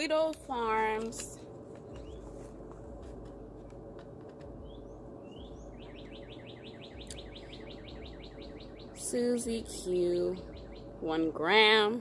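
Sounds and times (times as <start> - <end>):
low background noise: 0.0 - 12.0
bird chirping and trilling: 4.6 - 11.5.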